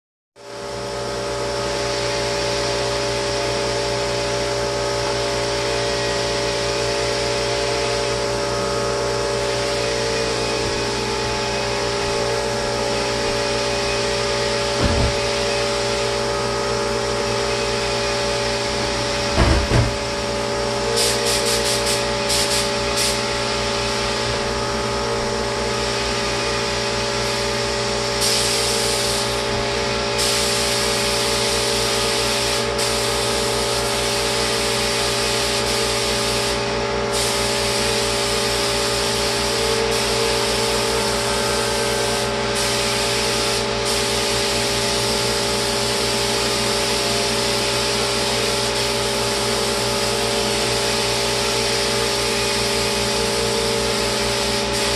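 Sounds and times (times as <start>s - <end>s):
spray rig motor humming: 5.0s - 54.9s
spray gun hissing: 9.1s - 20.4s, 21.0s - 24.2s, 28.1s - 54.9s.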